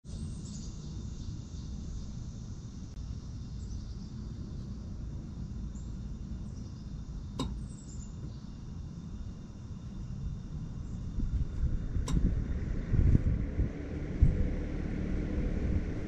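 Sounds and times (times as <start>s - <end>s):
heat pump low hum: 0.1s - 16.0s
sharp click: 7.4s - 7.6s, 12.0s - 12.3s.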